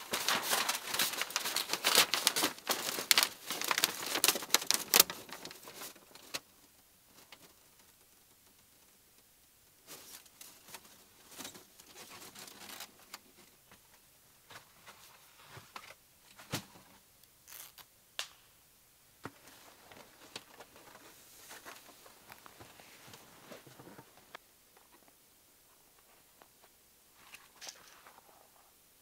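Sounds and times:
metal sheet rustling and scraping: 0.0 - 6.0.

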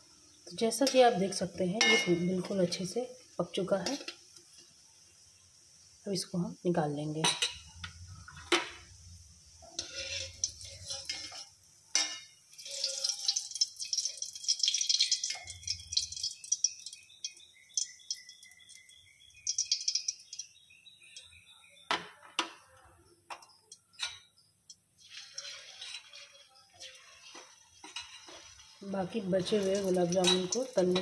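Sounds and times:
hot oil sizzling and crackling: 0.0 - 21.3, 23.2 - 31.0
metal skimmer clinking against pan: 1.8 - 2.4, 29.6 - 31.0.

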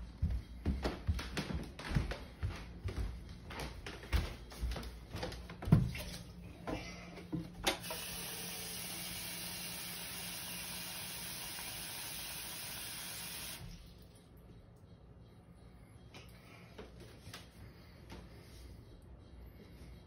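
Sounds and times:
faucet running into metal bowl: 7.8 - 13.9.

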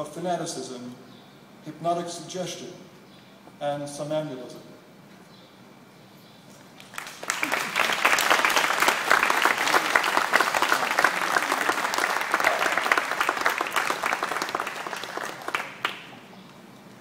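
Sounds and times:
audience applauding: 6.8 - 16.3.

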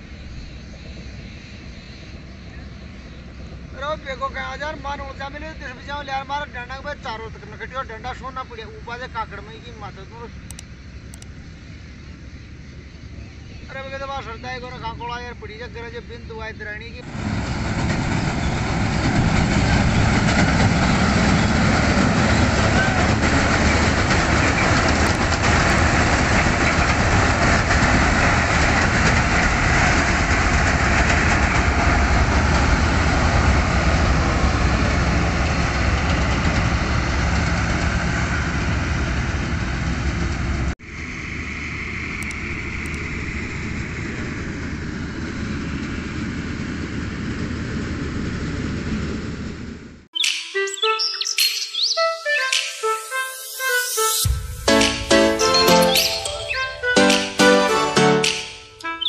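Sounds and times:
combine harvester droning: 17.0 - 48.2.

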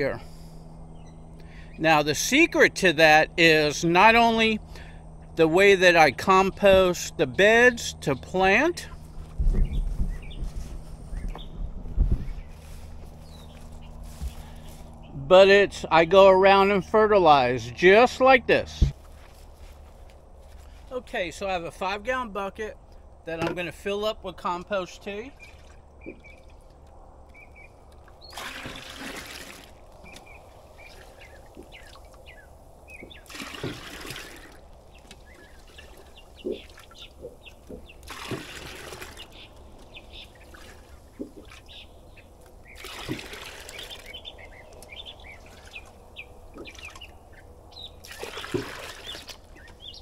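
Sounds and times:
birds chirping: 0.0 - 50.0
liquid pouring: 28.3 - 29.8, 33.3 - 34.6, 42.8 - 44.0.

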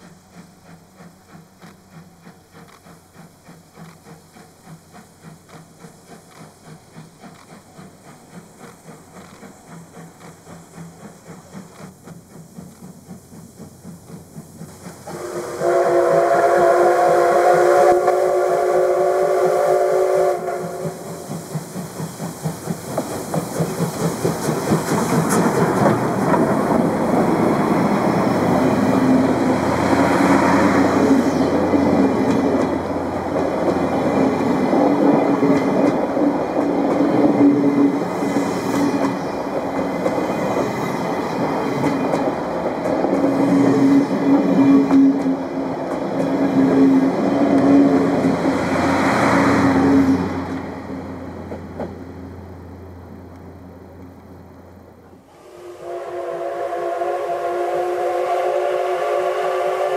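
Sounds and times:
train rattle: 0.0 - 55.3
steam locomotive chuffing: 0.0 - 59.9
steam whistle blast: 15.0 - 21.4, 55.2 - 59.9.

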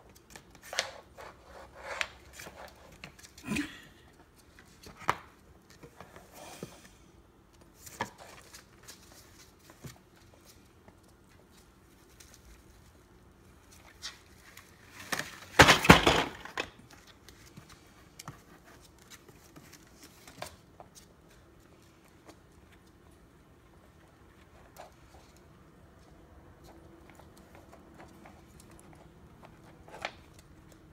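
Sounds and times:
clatter of wooden blocks: 15.5 - 16.8.

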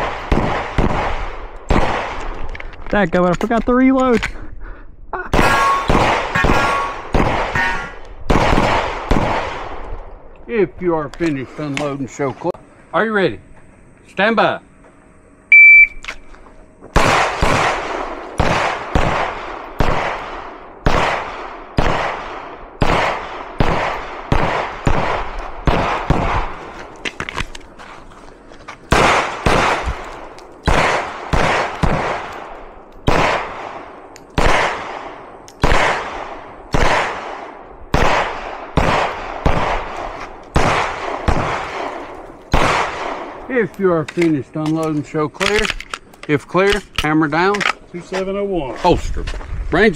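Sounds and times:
pistol shots: 0.0 - 2.4, 5.3 - 9.9, 17.0 - 26.6, 28.9 - 43.4.

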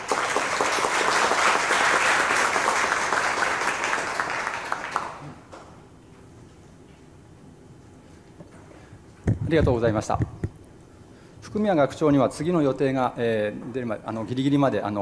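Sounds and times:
audience applauding: 0.0 - 5.6.

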